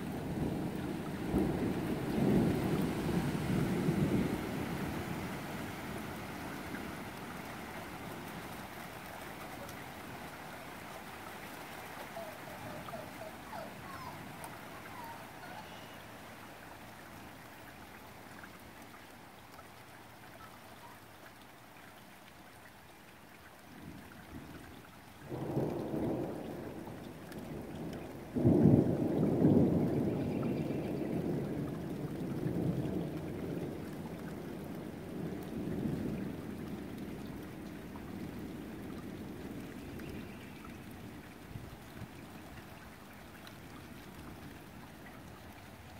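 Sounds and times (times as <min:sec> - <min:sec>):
thunder rumbling: 0:00.0 - 0:10.3, 0:25.3 - 0:39.8
steady rain: 0:00.0 - 0:45.9.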